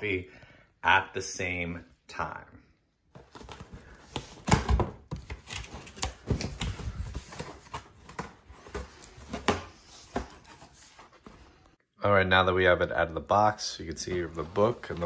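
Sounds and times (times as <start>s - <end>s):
cardboard flaps scraping and crackling: 14.1s - 15.0s.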